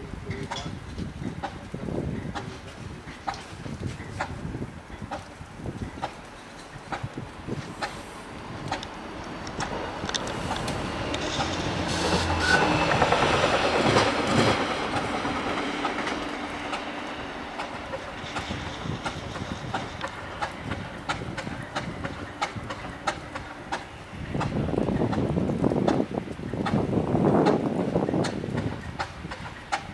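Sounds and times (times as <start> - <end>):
diesel locomotive engine running: 7.6 - 25.2.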